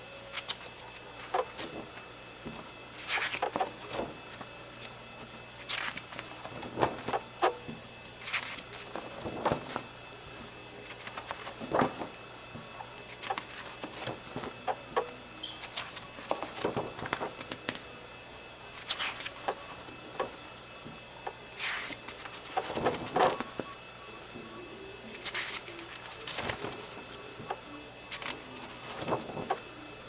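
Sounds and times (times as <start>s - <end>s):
album pages rustling: 0.3s - 5.0s, 5.6s - 7.3s, 8.2s - 9.9s, 10.8s - 14.6s, 15.6s - 17.9s, 21.6s - 23.7s, 25.1s - 29.7s.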